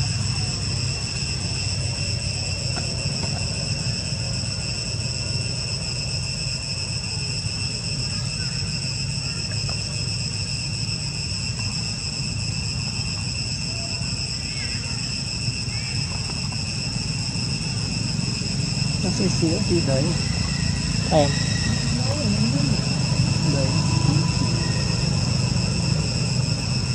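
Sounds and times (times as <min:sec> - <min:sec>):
insects chirring: 0:00.0 - 0:26.9.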